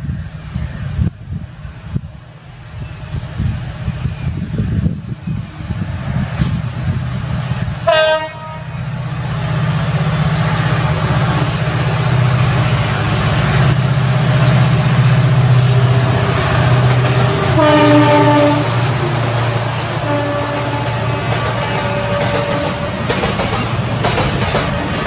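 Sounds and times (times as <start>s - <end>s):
train horn blasts: 7.8s - 8.8s, 17.0s - 19.2s, 19.8s - 23.1s.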